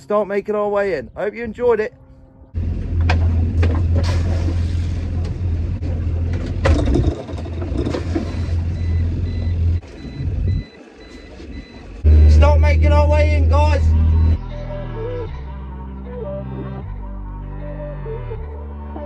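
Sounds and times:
boat engine humming: 0:02.0 - 0:14.6
sharp knocks and clatters: 0:06.2 - 0:08.3.

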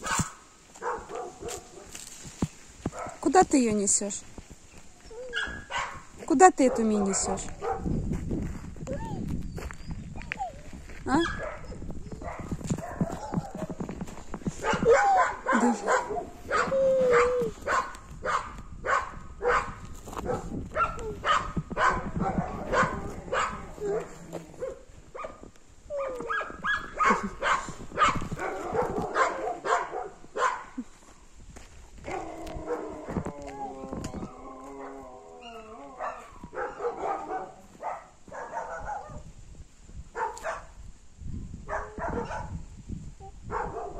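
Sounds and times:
dog barking: 0:00.0 - 0:02.0, 0:02.9 - 0:03.2, 0:05.3 - 0:07.9, 0:11.2 - 0:13.7, 0:14.6 - 0:25.4, 0:26.0 - 0:30.8, 0:36.0 - 0:39.2, 0:40.2 - 0:40.7, 0:41.7 - 0:42.6, 0:43.5 - 0:43.9
footsteps crunching on gravel: 0:00.0 - 0:38.8.

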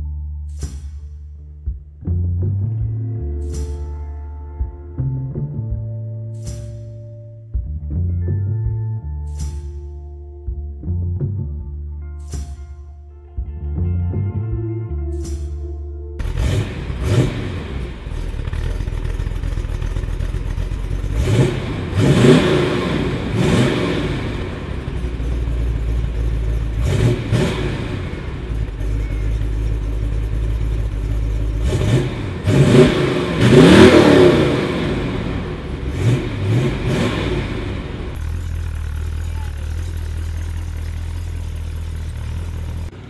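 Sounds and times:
car engine idling and revving: 0:16.2 - 0:43.0.

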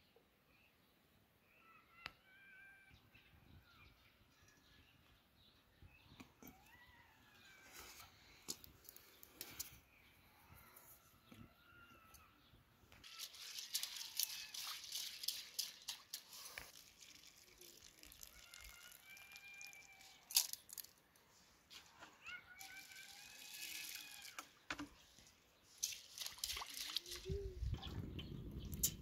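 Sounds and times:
berries rustling in metal bowl: 0:13.0 - 0:21.0, 0:22.6 - 0:24.4.

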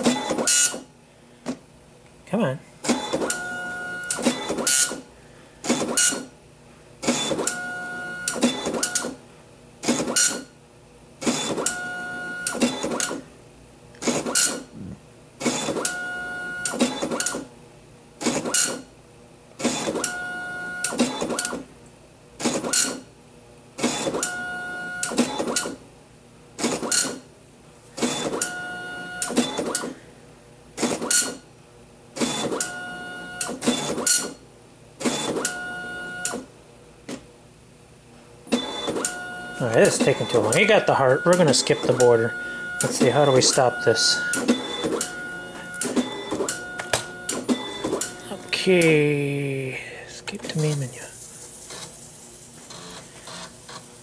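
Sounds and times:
dot-matrix printer printing: 0:00.0 - 0:00.8, 0:02.8 - 0:05.0, 0:05.6 - 0:06.3, 0:07.0 - 0:09.2, 0:09.8 - 0:10.5, 0:11.2 - 0:13.2, 0:14.0 - 0:14.7, 0:15.4 - 0:17.5, 0:18.2 - 0:18.9, 0:19.6 - 0:21.6, 0:22.4 - 0:23.0, 0:23.8 - 0:25.8, 0:26.6 - 0:27.2, 0:28.0 - 0:29.9, 0:30.8 - 0:31.4, 0:32.2 - 0:34.4, 0:35.0 - 0:36.5, 0:38.5 - 0:48.9, 0:51.4 - 0:54.0.

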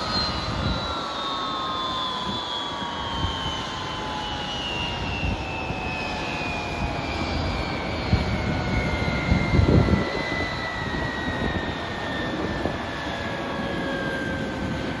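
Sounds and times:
jet engine whine falling in pitch: 0:00.0 - 0:15.0.

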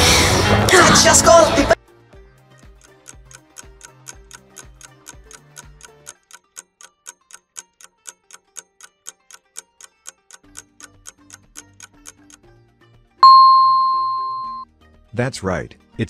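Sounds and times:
background music: 0:00.0 - 0:06.1
countdown timer ticking: 0:02.5 - 0:12.4, 0:13.2 - 0:14.6.

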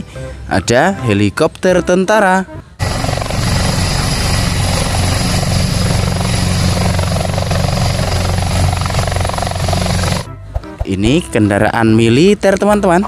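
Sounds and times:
helicopter engine whine: 0:02.8 - 0:10.3
helicopter rotor blades chopping: 0:02.8 - 0:10.9.

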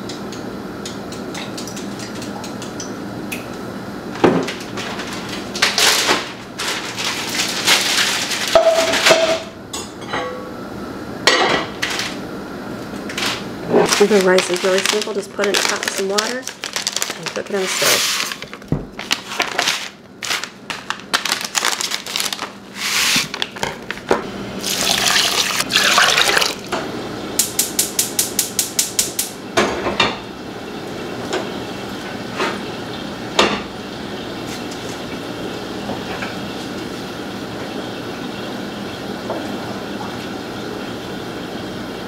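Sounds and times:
tap water running into saucepan: 0:24.6 - 0:26.8.

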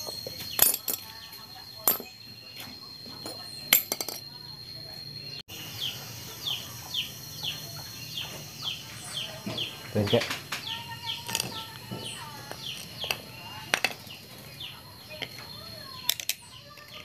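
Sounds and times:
metal hand tools clinking: 0:00.0 - 0:01.1, 0:03.7 - 0:04.2, 0:11.2 - 0:11.8.

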